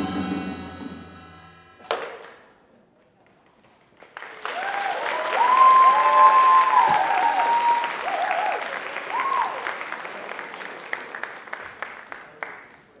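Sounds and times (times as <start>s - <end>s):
audience applauding: 3.4s - 13.0s
whoops and cheers: 4.4s - 9.8s.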